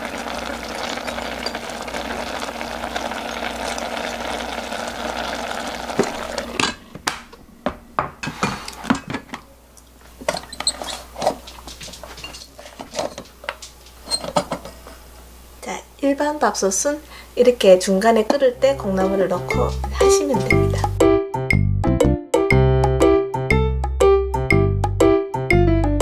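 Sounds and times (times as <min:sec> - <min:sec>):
rice and water boiling: 0:00.0 - 0:07.2, 0:10.1 - 0:14.8
dishes and utensils clinking: 0:00.8 - 0:01.8, 0:08.1 - 0:09.4, 0:10.2 - 0:14.8.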